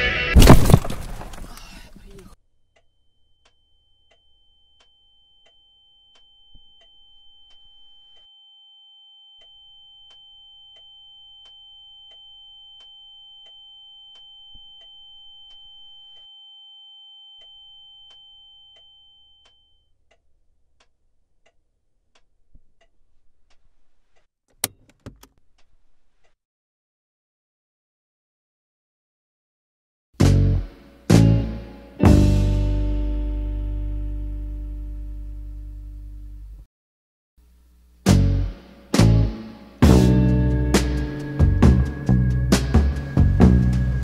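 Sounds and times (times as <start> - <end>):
high ringing tone: 2.8 - 19.9.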